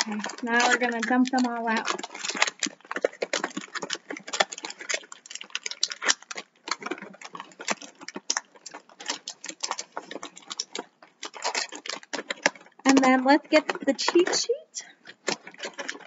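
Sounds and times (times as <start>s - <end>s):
plastic figures clicking and clattering: 0.0s - 16.0s.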